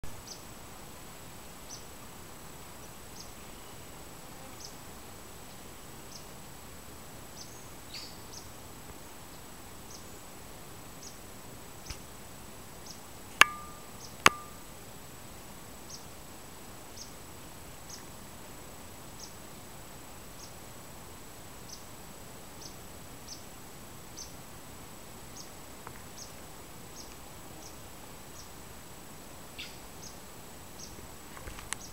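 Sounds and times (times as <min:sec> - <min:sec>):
insect ticks: 0:13.4 - 0:14.6
steady thin high tone: 0:13.4 - 0:14.6.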